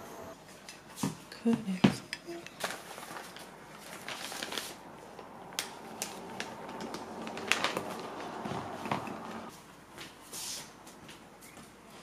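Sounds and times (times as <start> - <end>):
plastic bag crinkling: 2.6 - 4.8, 5.5 - 8.4.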